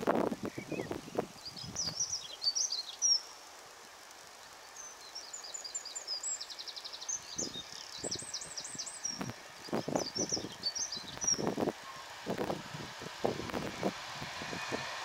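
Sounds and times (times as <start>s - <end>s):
songbirds singing: 0.0s - 3.6s, 4.2s - 12.2s
low noisy rumbles: 0.0s - 15.0s
outdoor hiss: 0.0s - 15.0s.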